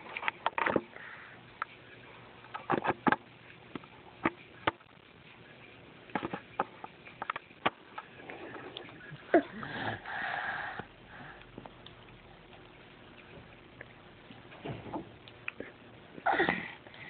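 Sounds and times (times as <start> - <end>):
toddler breathing and huffing: 9.4 - 11.4.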